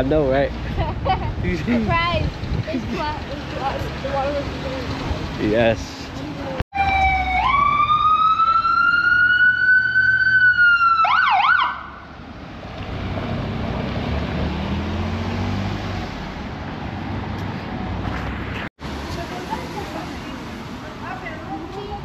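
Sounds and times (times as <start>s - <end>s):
passing vehicles: 0.0s - 22.0s
siren wailing: 6.8s - 12.0s.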